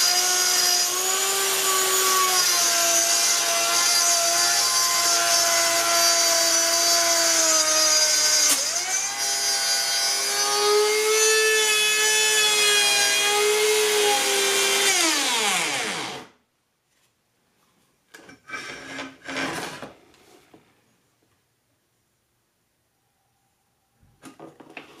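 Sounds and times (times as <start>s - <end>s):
router motor whine: 0.0s - 16.3s.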